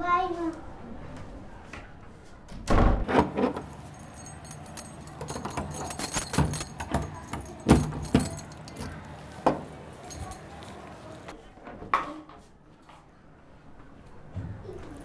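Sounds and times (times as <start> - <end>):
keys jangling: 3.2 - 11.3.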